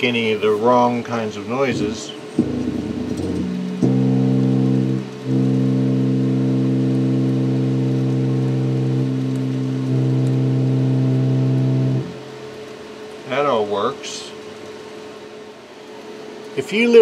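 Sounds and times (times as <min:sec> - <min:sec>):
electric bass chord: 0:01.7 - 0:12.4.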